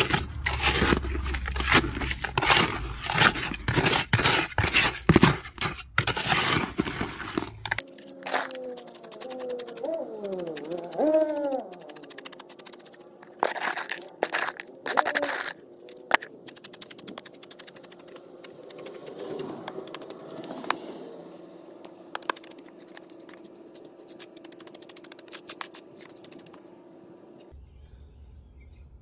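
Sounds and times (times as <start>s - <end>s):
gritty scraping of crushed stone: 0.0s - 20.8s, 22.2s - 26.6s
small stones clicking: 0.0s - 20.8s, 22.1s - 26.6s.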